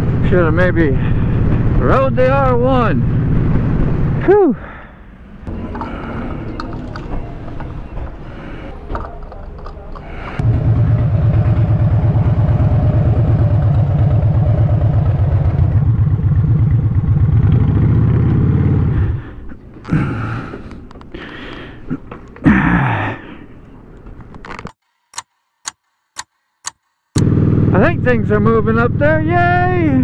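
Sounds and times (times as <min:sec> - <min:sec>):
motorcycle engine running: 0:10.4 - 0:19.2, 0:27.2 - 0:30.0.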